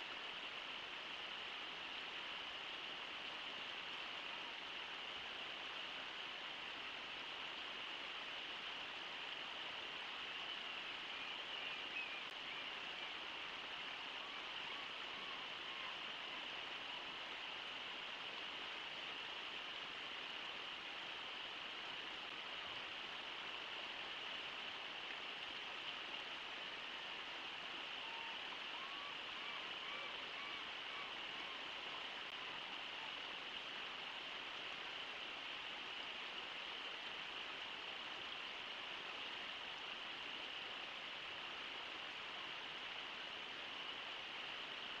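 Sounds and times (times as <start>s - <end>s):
river rushing over waterfall: 0.0s - 45.0s
faint gull calls: 27.9s - 33.2s.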